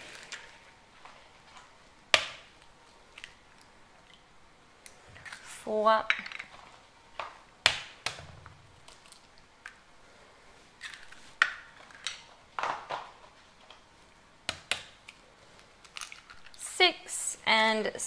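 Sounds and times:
eggshells cracking on a bowl: 15.8s - 16.6s.

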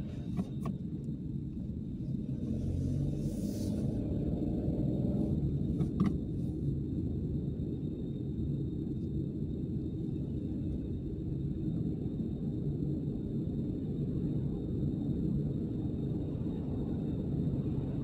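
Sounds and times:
car engine and tyres rumbling: 0.0s - 18.0s.

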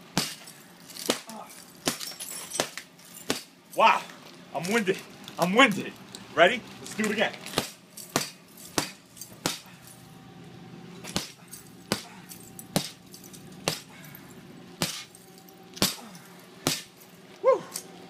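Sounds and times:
hammer striking glass: 0.2s - 3.5s, 7.6s - 9.7s, 11.0s - 12.1s, 12.7s - 13.0s, 13.6s - 14.0s, 14.8s - 15.2s, 15.8s - 17.0s.

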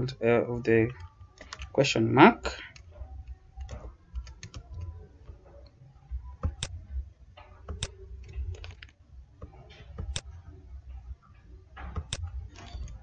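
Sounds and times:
computer mouse clicks: 2.7s - 5.4s, 7.6s - 10.3s
keyboard keys clicking: 2.7s - 6.8s.

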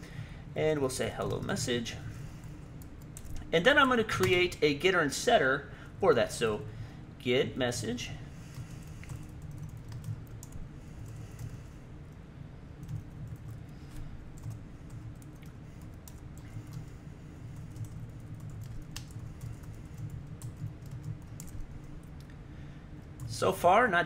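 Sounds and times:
low background hum: 0.0s - 24.0s.

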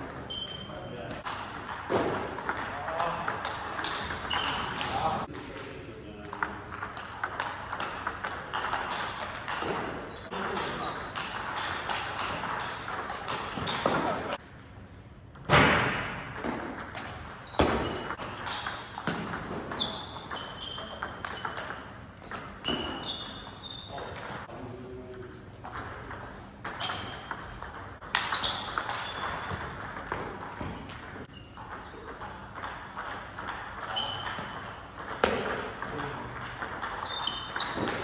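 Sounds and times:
shoe squeaks: 0.2s - 1.1s, 4.2s - 5.1s, 17.4s - 18.9s, 19.7s - 21.9s, 22.6s - 24.4s, 26.8s - 27.5s, 28.2s - 29.6s, 31.3s - 32.0s, 33.8s - 34.7s, 36.8s - 38.0s.

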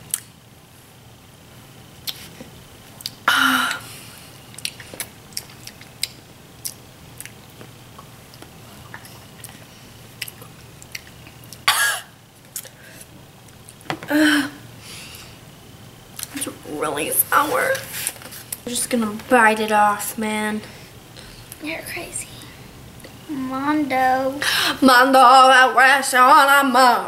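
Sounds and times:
wet mouth clicks and smacks: 4.6s - 7.4s, 10.2s - 11.6s
girl coughing: 11.7s - 12.1s.

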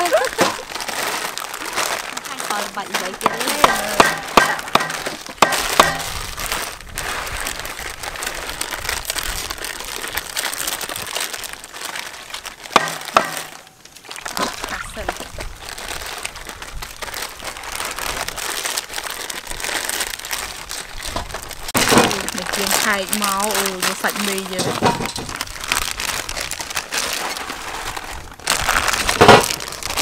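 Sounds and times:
plastic packets crinkling and tearing: 0.0s - 30.0s
cleaver chopping on wooden block: 3.2s - 6.1s, 12.8s - 13.5s.

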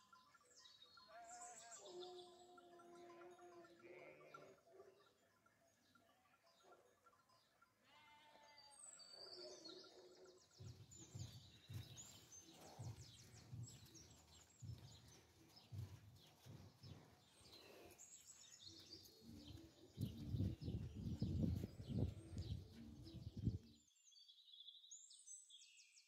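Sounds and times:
small birds chirping: 0.0s - 26.0s
soft low thuds: 10.6s - 18.2s, 18.8s - 23.6s.

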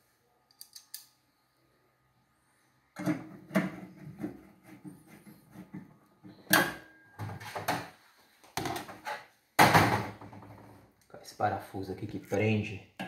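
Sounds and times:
screwdriver clicks and scrapes: 0.5s - 1.1s.

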